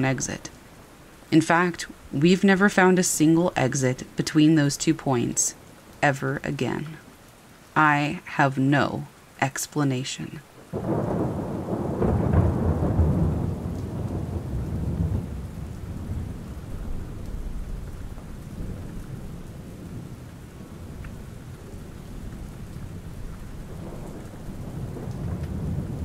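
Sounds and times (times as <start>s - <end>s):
steady rain: 0.0s - 26.0s
rolling thunder: 10.7s - 26.0s.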